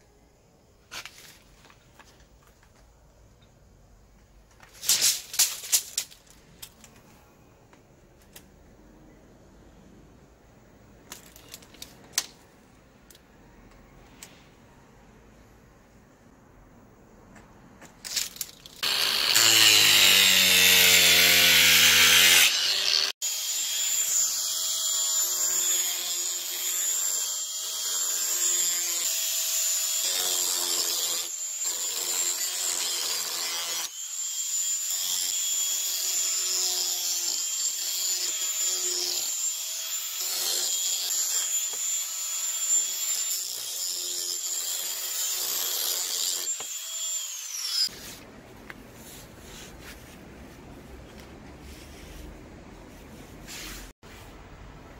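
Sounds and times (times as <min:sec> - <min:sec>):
angle grinder grinding board: 0:18.8 - 0:48.0.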